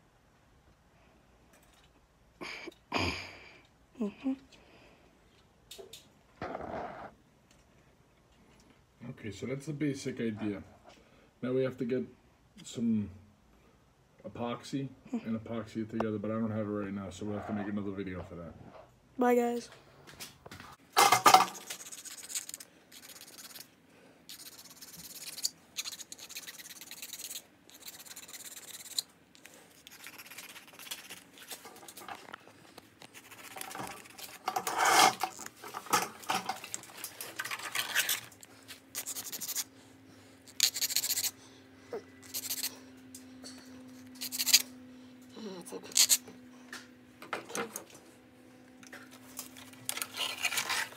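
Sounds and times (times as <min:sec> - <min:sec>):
hand file rasping on toy car: 0:24.3 - 0:29.1, 0:39.0 - 0:39.7, 0:40.5 - 0:41.4, 0:42.2 - 0:42.7, 0:44.2 - 0:44.6, 0:45.9 - 0:46.2.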